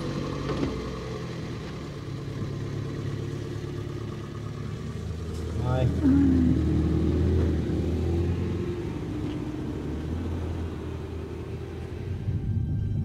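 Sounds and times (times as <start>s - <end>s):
car pulling away and driving off: 0.0s - 13.0s
music: 12.0s - 13.0s.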